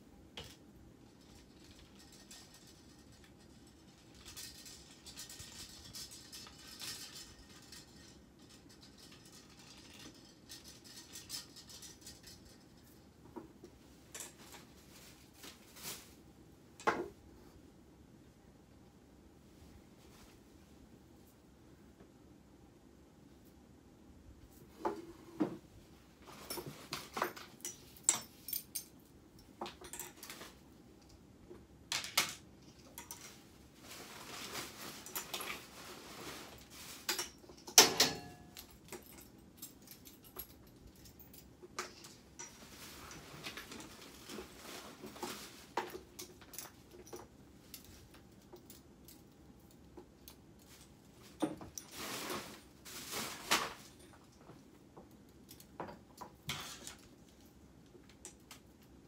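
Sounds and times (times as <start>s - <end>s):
clothes rustling: 13.8s - 16.3s, 32.8s - 49.3s, 50.6s - 54.7s.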